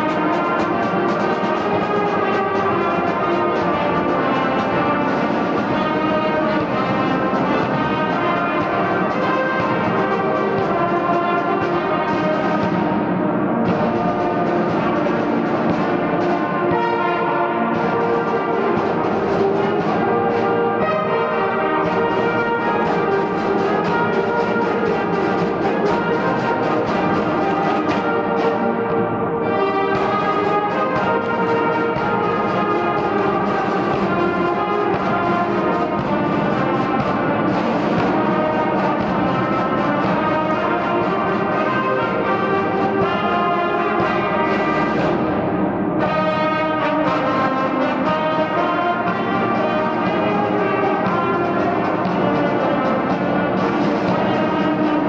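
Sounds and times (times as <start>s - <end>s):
drum beats: 0.0s - 55.0s
marching band playing: 0.0s - 55.0s.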